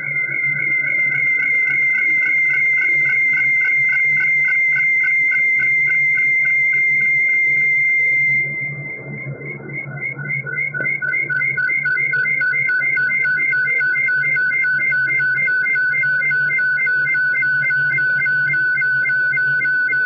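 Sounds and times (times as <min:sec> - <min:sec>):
pulsing whistle-like synthesizer tone: 0:00.0 - 0:20.0
low synth drone: 0:07.9 - 0:20.0.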